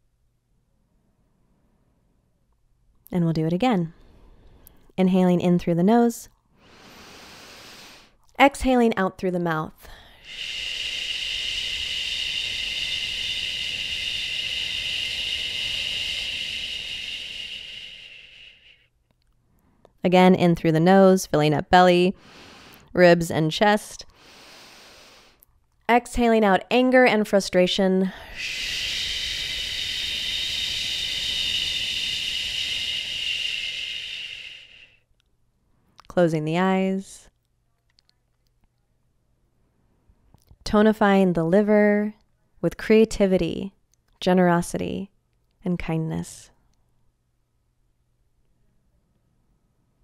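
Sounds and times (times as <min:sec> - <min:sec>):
woman exhaling shh: 0:09.9 - 0:18.9, 0:28.1 - 0:35.0.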